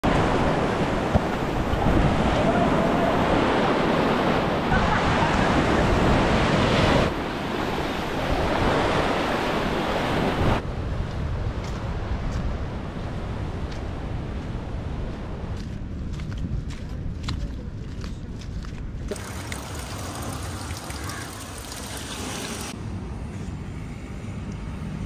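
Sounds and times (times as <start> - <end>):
surf breaking on beach: 0.0 - 10.6
wind buffeting microphone: 0.0 - 19.2.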